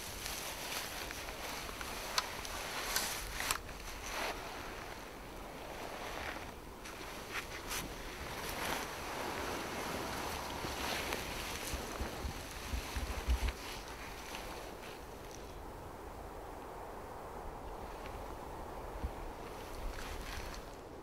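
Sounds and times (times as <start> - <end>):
brief rustles: 0.0 - 4.9
wind blowing over microphone: 0.0 - 21.0.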